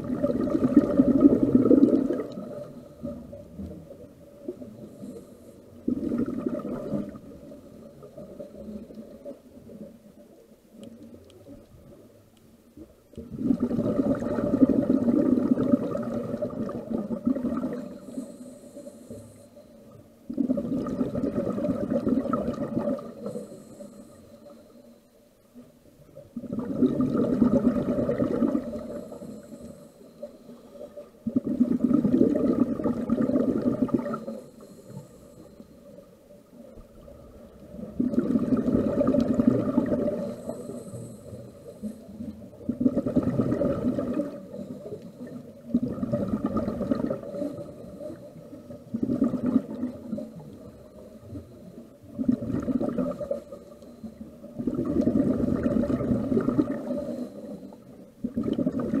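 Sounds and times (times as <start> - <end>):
regulator exhaust bubbles gurgling: 0.0 - 3.2, 5.8 - 7.4, 13.2 - 18.2, 20.3 - 23.2, 26.3 - 29.1, 31.2 - 34.4, 36.9 - 53.5, 54.5 - 57.2, 58.2 - 59.0
soft hissing inhale through regulator: 0.2 - 58.9.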